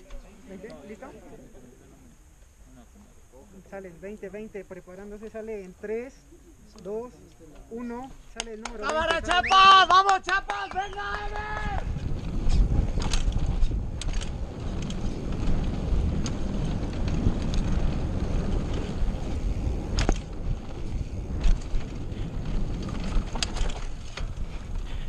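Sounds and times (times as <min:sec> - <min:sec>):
bike tyres rumbling on dirt: 0:10.7 - 0:25.0
bike clacking and rattling: 0:11.2 - 0:25.0.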